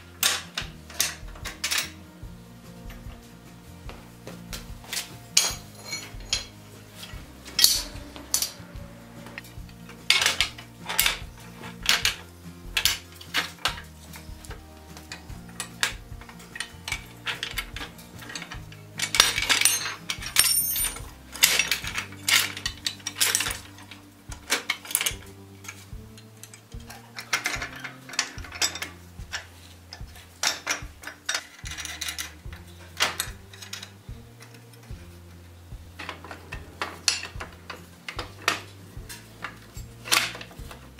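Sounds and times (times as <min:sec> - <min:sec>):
metal clinks and clanks: 0:00.0 - 0:02.1, 0:02.8 - 0:35.2, 0:35.9 - 0:40.9
background music with bass: 0:00.0 - 0:40.9.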